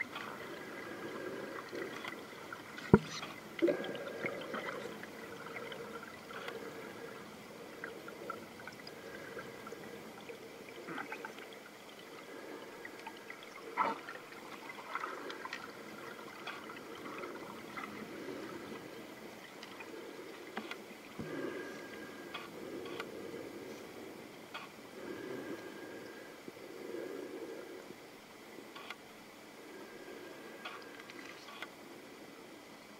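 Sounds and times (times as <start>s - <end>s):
muffled underwater water wash: 0.0s - 32.9s
small underwater clicks: 1.6s - 6.8s, 12.9s - 20.9s, 21.9s - 23.2s, 24.5s - 24.8s, 28.7s - 29.0s, 30.6s - 31.8s.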